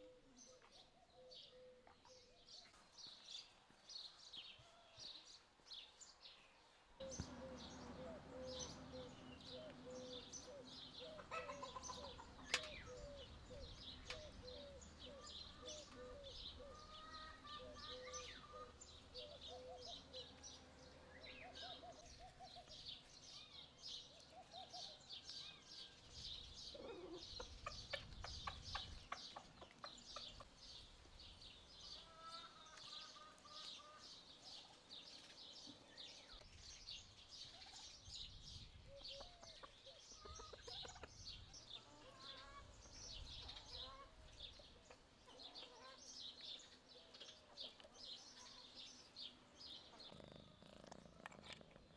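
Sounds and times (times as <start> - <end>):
small birds chirping: 0.0 - 51.9
chickens clucking: 7.0 - 22.9, 26.6 - 31.1, 31.9 - 34.9, 39.0 - 48.7.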